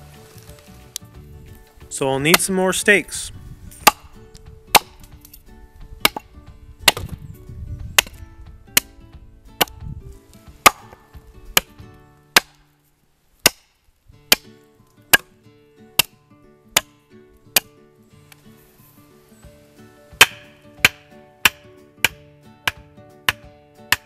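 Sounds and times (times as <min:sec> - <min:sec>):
hatchet chopping wood: 0:02.2 - 0:02.6, 0:03.8 - 0:05.3, 0:06.0 - 0:07.2, 0:07.8 - 0:09.0, 0:09.6 - 0:09.9, 0:10.5 - 0:12.7, 0:13.4 - 0:14.5, 0:15.1 - 0:15.3, 0:15.9 - 0:17.8, 0:20.1 - 0:24.0.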